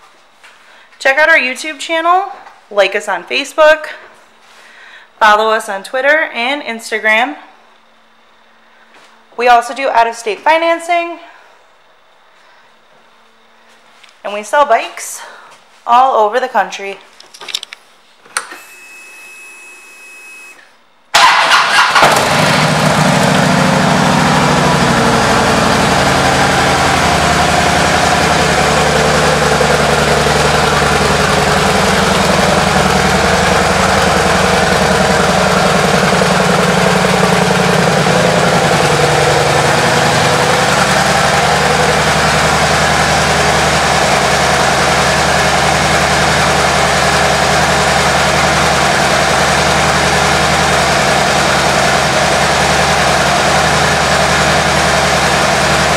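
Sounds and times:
faint high whine: 18.3s - 20.8s
motorcycle engine starting and idling: 21.1s - 55.9s.

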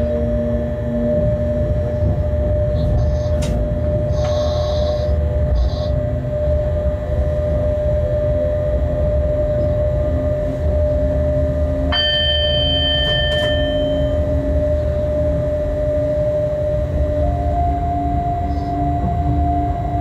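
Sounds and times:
locomotive cab rumble: 0.0s - 20.0s
steady whine: 0.0s - 20.0s
bell-like ding: 11.9s - 14.4s.

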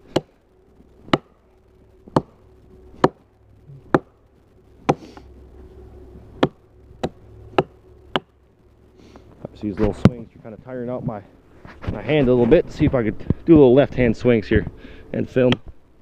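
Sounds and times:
axe chopping tree trunk: 0.1s - 0.4s, 1.0s - 1.3s, 2.1s - 2.4s, 3.0s - 4.1s, 6.4s - 8.3s.

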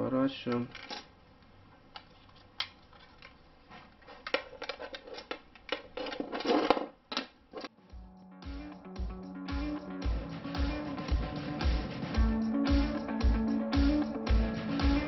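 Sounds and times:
plastic parts clicking and rubbing: 4.0s - 7.7s.

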